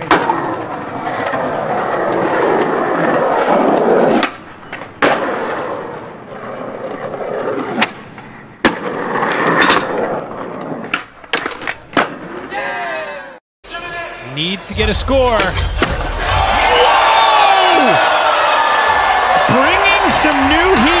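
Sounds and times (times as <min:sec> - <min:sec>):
skateboard clacking on ground: 0:00.0 - 0:12.4
skateboard wheels rolling on pavement: 0:00.0 - 0:12.8, 0:17.0 - 0:21.0.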